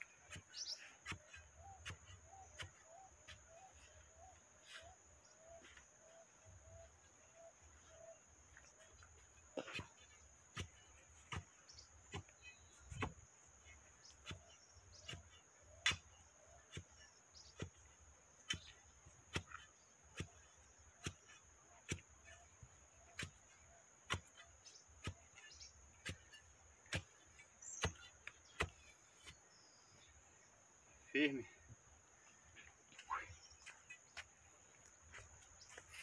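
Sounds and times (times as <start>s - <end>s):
iron bar pounding soil: 0.0s - 5.5s, 8.6s - 29.8s.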